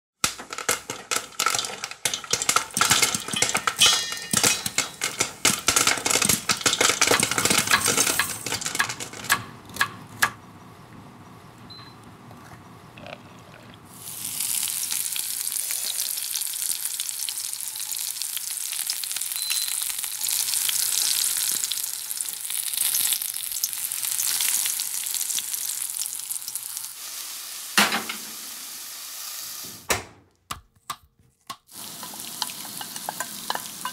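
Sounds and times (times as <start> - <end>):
oil crackling in frying pan: 0.2 - 9.4, 13.9 - 29.7, 31.6 - 33.9
food sizzling: 0.3 - 9.1, 13.8 - 29.9, 31.7 - 33.9
pan knocking down: 0.3 - 9.4.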